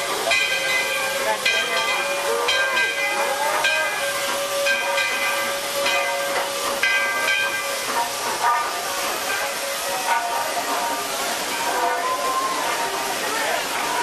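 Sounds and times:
steam hissing: 0:00.0 - 0:14.0
steam locomotive bell ringing: 0:00.0 - 0:14.0.

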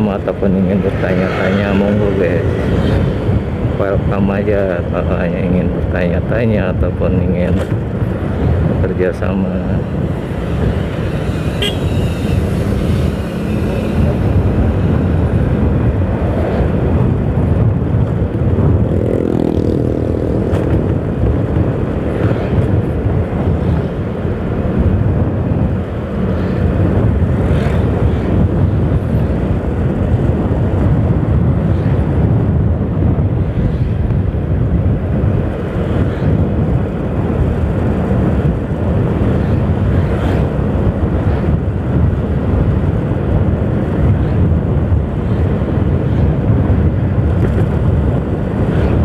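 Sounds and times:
motorcycle engine drone: 0:00.0 - 0:49.0
wind and road noise: 0:00.0 - 0:49.0
other vehicle engine note: 0:11.4 - 0:12.5.

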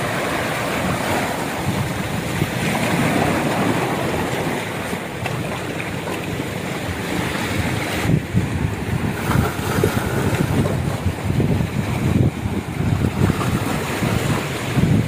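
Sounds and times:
waves washing against rocks: 0:00.0 - 0:15.0
wind buffeting microphone: 0:00.0 - 0:15.0.

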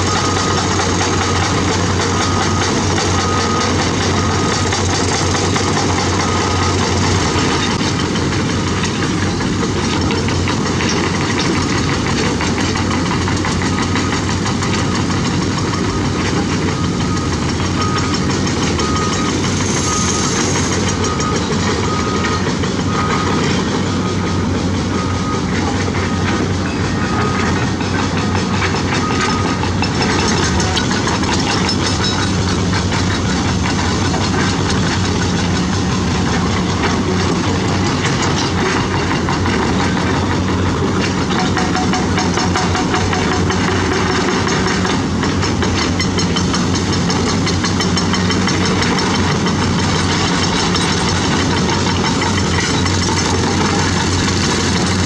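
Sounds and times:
clanking steel tracks and rock: 0:00.0 - 0:55.0
heavy machinery engine din: 0:00.0 - 0:55.0
warning alarm beeping: 0:13.6 - 0:32.4.

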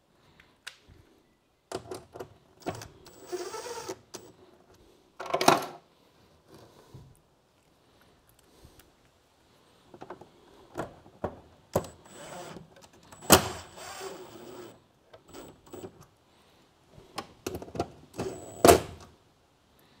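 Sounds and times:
impact driver driving screws: 0:11.8 - 0:12.6, 0:13.2 - 0:15.9.

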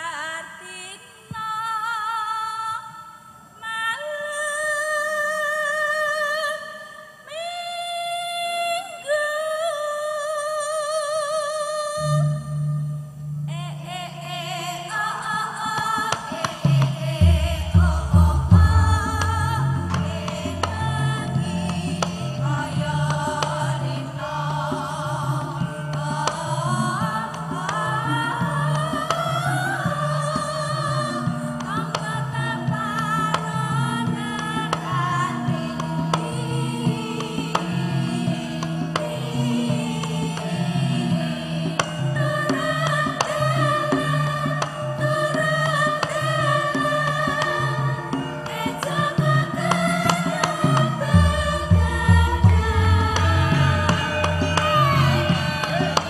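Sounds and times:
woman singing with vibrato: 0:00.0 - 0:56.0
sharp drum strokes: 0:15.8 - 0:23.7
gamelan: 0:16.3 - 0:31.7, 0:40.6 - 0:56.0.

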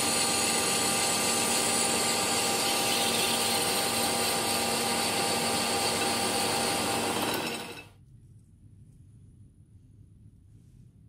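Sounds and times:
metal lathe whining: 0:00.0 - 0:07.9.

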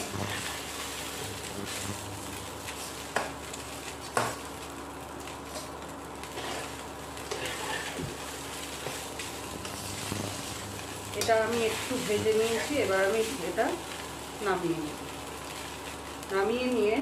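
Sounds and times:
spatula stirring and scraping: 0:00.0 - 0:04.5, 0:05.4 - 0:14.1
noodles sizzling in hot oil: 0:00.0 - 0:17.0.

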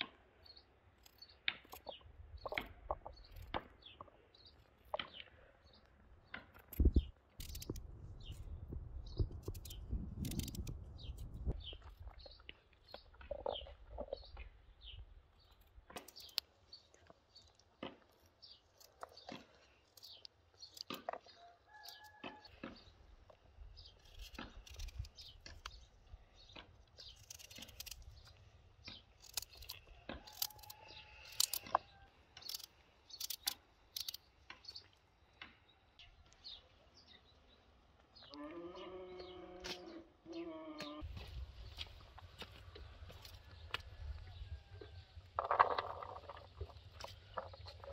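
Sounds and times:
faint birds chirping: 0:00.0 - 0:47.9
knife cutting a carrot: 0:24.0 - 0:25.7, 0:26.9 - 0:28.3, 0:29.2 - 0:31.8.

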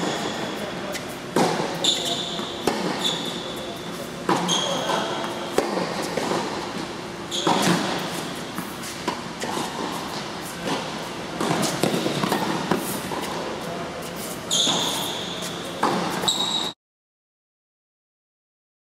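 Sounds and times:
tennis balls struck by rackets: 0:00.0 - 0:13.6, 0:14.6 - 0:16.3
balls bouncing on court: 0:01.3 - 0:13.5.

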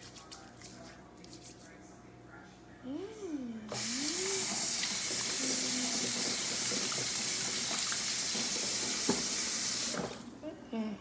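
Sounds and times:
faucet turned on: 0:03.7 - 0:10.2
tap water running into sink: 0:03.8 - 0:10.3.

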